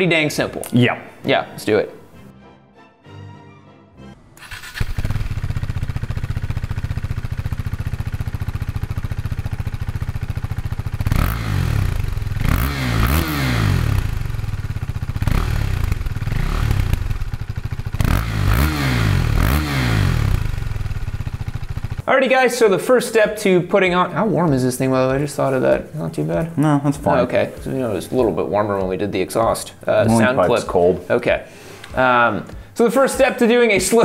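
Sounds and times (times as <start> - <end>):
motorcycle engine idling and revving: 4.4 - 22.1.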